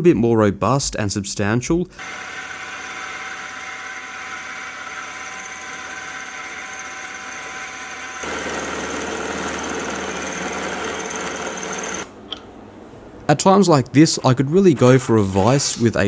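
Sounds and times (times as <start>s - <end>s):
milling machine cutting metal: 2.0s - 12.1s.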